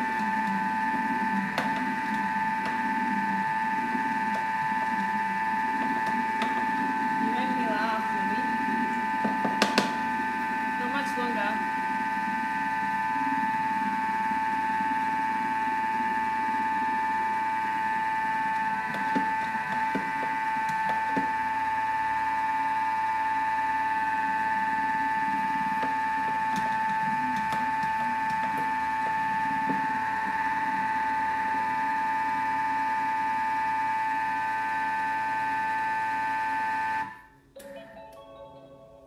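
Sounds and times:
appliance motor whining: 0.0 - 37.3.

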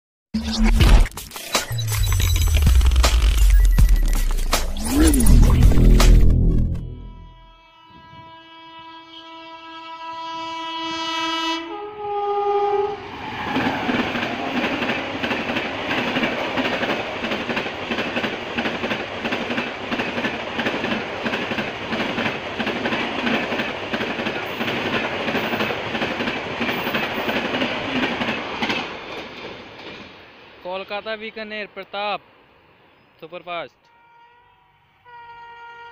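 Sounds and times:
locomotive horn: 6.4 - 13.1, 33.8 - 35.9
train coaches passing: 12.0 - 35.9.

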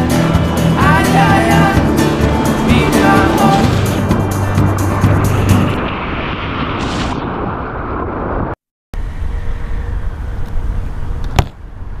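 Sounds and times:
whitewater rushing and splashing: 0.0 - 7.1
low rumble: 0.0 - 11.2.

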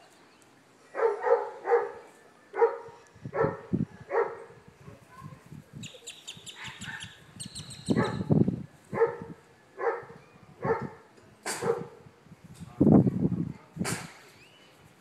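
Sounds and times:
puppy barking: 1.0 - 2.0, 2.6 - 4.4, 6.6 - 7.1, 7.9 - 8.3, 9.0 - 11.0, 11.6 - 11.9.

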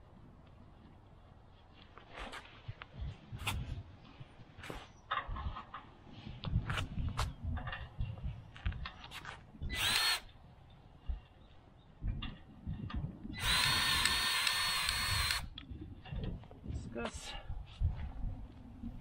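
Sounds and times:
grease gun motor whirring: 9.7 - 10.3, 13.4 - 15.5.

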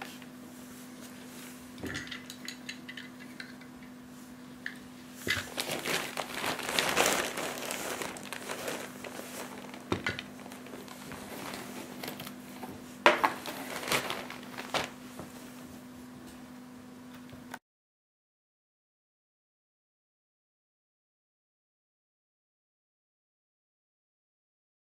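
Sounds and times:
plastic packaging crinkling: 5.2 - 15.0.

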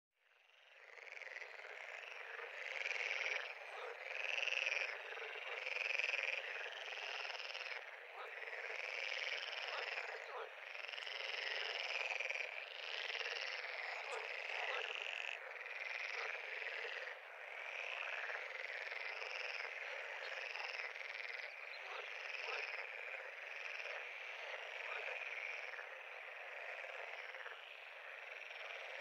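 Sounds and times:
chorus of frogs calling: 0.5 - 29.0.

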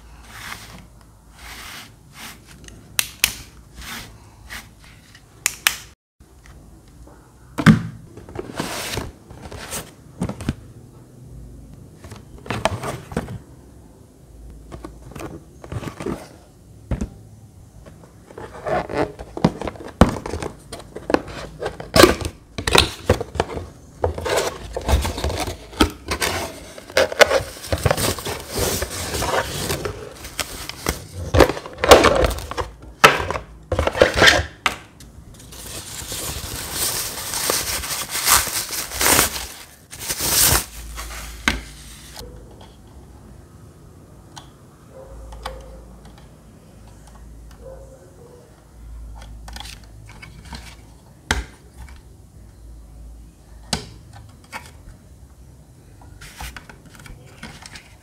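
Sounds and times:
plastic bag crinkling: 35.5 - 41.4.

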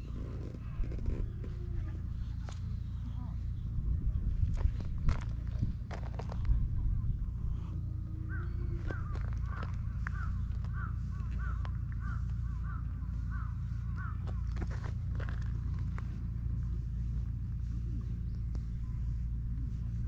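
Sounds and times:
steady low rumble: 0.0 - 20.0
bird calling: 7.6 - 16.0.

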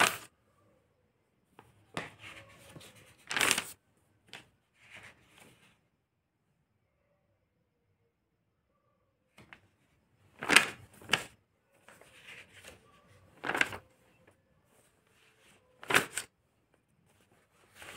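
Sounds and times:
notebook pages turning: 0.0 - 0.3, 1.6 - 5.7, 10.3 - 16.4, 17.1 - 17.9.

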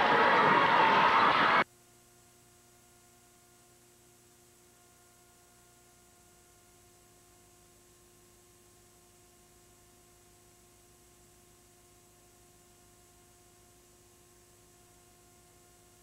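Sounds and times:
faint hum and hiss: 0.0 - 16.0.

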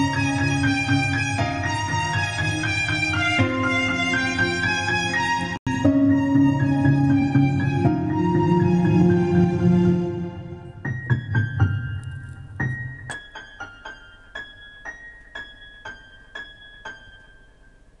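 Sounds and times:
keyboard piano music: 0.0 - 18.0.

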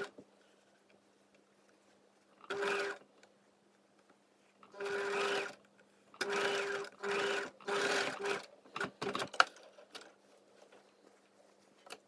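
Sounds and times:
sewing machine stitching: 2.4 - 3.0, 4.6 - 5.6, 6.2 - 9.5.

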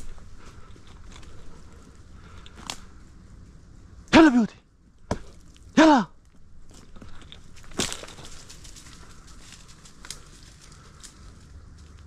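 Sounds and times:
twigs and leaves crackling: 0.0 - 4.1, 4.8 - 12.0
twig snapping: 2.3 - 3.0
footsteps through dry scrub: 6.3 - 12.0.

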